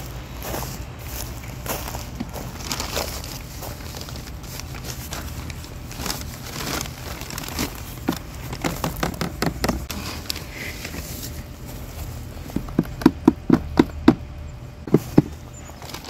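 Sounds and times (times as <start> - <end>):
plastic bag crinkling: 2.5 - 9.1.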